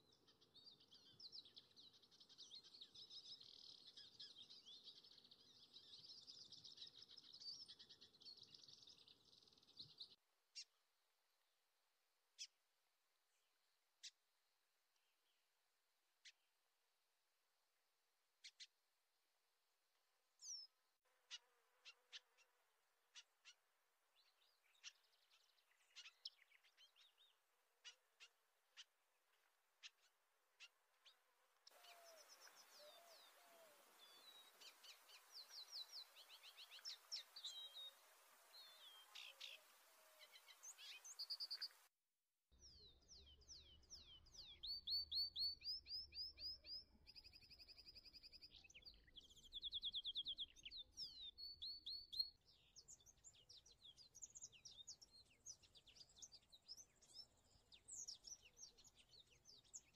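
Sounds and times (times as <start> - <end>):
faint birdsong chirps: 0.0 - 11.6, 18.4 - 18.9, 20.3 - 41.9, 42.5 - 59.9
soft hiss: 31.6 - 41.9
trilled bird calls: 31.7 - 41.8.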